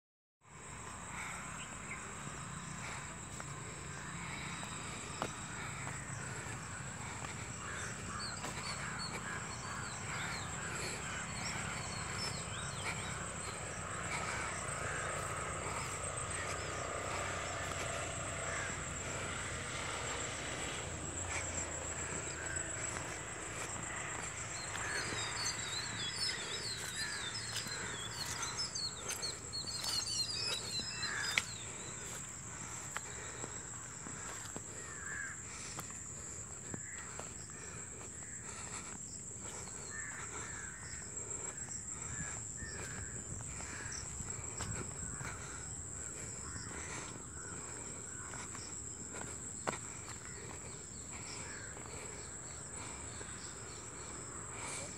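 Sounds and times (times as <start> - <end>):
birds chirping: 0.5 - 54.9
high-pitched insect trill: 0.8 - 54.9.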